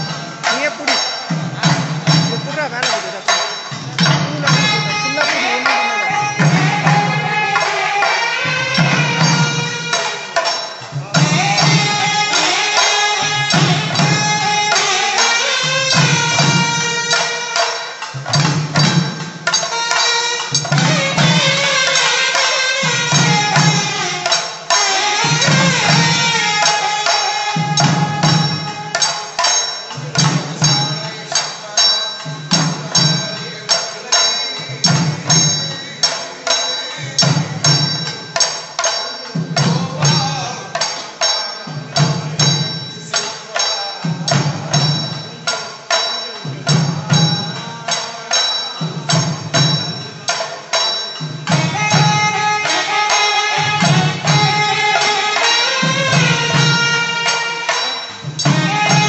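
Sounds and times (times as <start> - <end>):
hand drums beating: 0.0 - 59.0
metallic ringing: 0.0 - 59.0.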